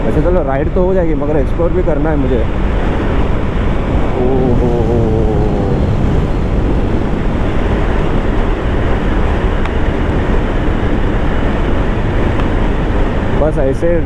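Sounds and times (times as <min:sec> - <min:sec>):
wind rush on microphone: 0:03.2 - 0:11.0
road noise: 0:03.9 - 0:09.0
motorcycle engine: 0:04.1 - 0:08.6.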